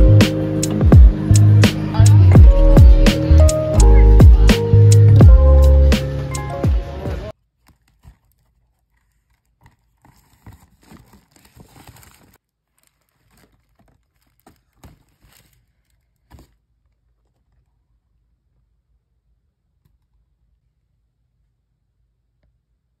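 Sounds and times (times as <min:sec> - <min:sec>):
paper bag and cardboard rustling: 0:07.4 - 0:17.7.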